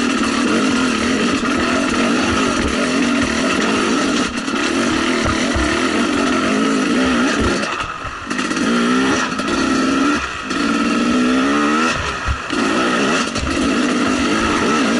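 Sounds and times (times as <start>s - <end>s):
dirt bike engine revving: 0.0s - 14.9s.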